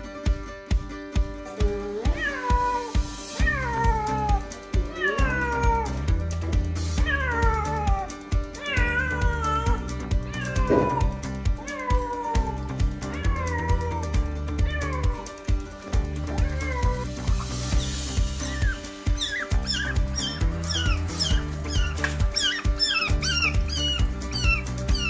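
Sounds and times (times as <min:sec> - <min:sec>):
background music with steady beat: 0:00.0 - 0:25.0
cat meowing: 0:02.0 - 0:06.0, 0:07.0 - 0:15.3, 0:16.3 - 0:17.3, 0:18.4 - 0:25.0.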